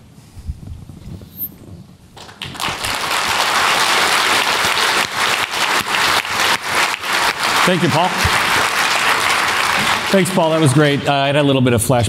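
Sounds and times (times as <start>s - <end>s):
audience applauding: 2.2s - 11.5s.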